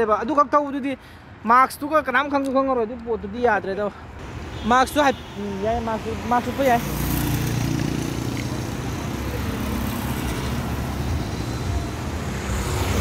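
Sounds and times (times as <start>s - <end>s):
road traffic passing: 0.0s - 13.0s
motorcycle engines: 4.2s - 13.0s.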